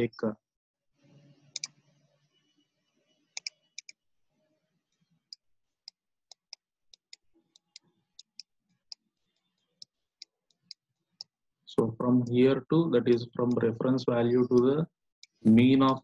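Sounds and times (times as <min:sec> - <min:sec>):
computer mouse clicking: 0:01.5 - 0:01.8, 0:03.4 - 0:04.0, 0:05.3 - 0:11.3, 0:13.1 - 0:16.0.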